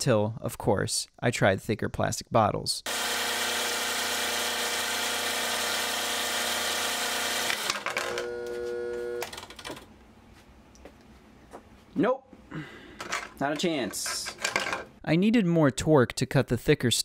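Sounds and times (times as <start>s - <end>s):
plastic shredder motor whine: 2.9s - 9.5s.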